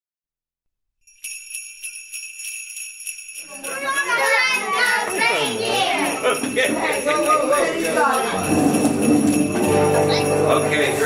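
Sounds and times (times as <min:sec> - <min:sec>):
sleigh bells jingling: 0:01.0 - 0:11.0
person speaking: 0:03.4 - 0:08.5.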